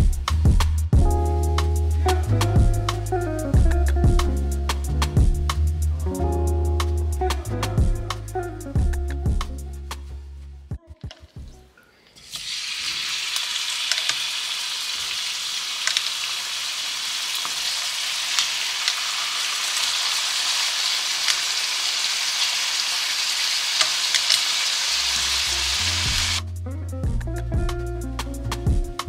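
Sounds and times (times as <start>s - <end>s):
meat sizzling in a frying pan: 12.2s - 26.4s.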